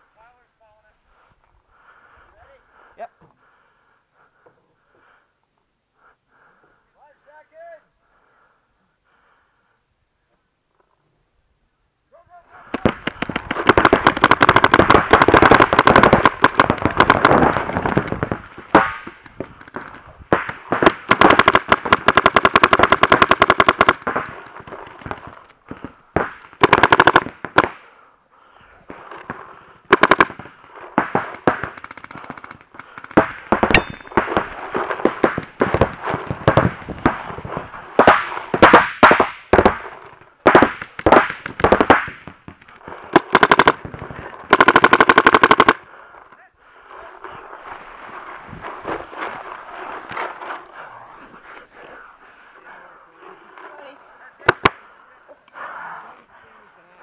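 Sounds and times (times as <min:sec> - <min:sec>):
paintball markers firing: 0:12.7 - 0:27.9, 0:29.0 - 0:45.9, 0:54.4 - 0:54.8.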